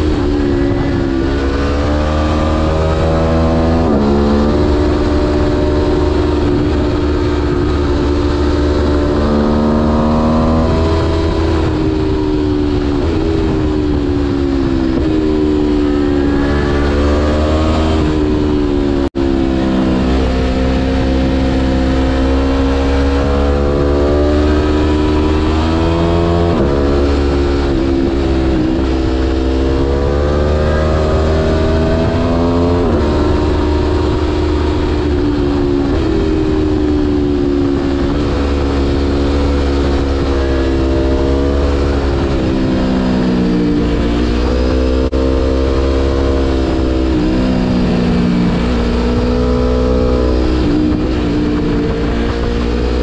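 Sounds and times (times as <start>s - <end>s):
motorcycle engine accelerating: 0.0s - 53.0s
wind rush on microphone: 0.0s - 53.0s.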